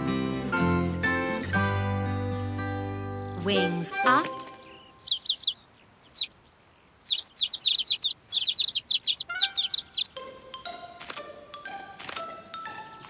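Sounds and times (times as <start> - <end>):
cartoon baby birds chirping: 3.6 - 10.8
chiming music notes: 10.1 - 13.0.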